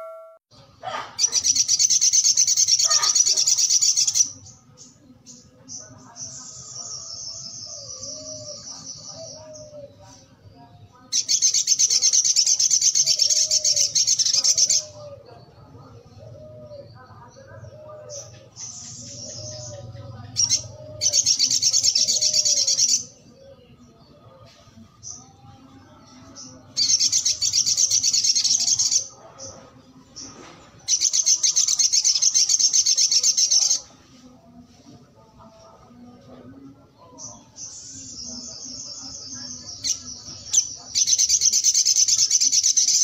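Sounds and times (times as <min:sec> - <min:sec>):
bird rapid high chirping: 0:01.2 - 0:04.6.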